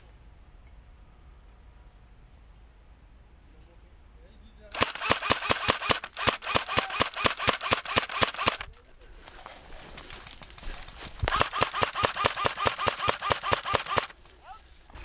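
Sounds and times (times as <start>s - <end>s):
airsoft rifle rapid fire: 4.7s - 8.7s, 11.2s - 14.2s.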